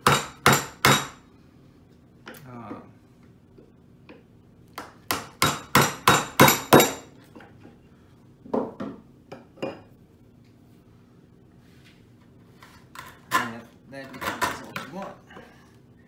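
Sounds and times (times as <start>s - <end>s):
mallet striking a chisel: 0.0s - 1.2s, 4.8s - 7.0s.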